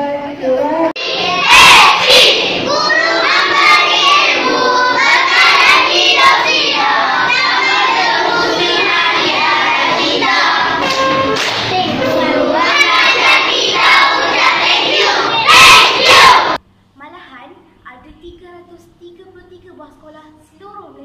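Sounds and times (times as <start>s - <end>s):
children singing in unison: 0.9s - 16.6s.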